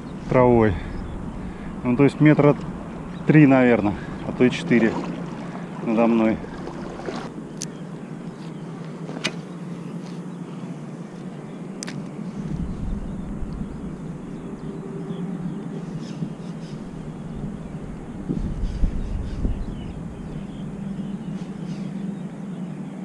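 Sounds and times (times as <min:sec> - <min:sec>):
low rumble: 0:00.0 - 0:08.2, 0:12.2 - 0:22.2
steady low hum: 0:00.0 - 0:23.0.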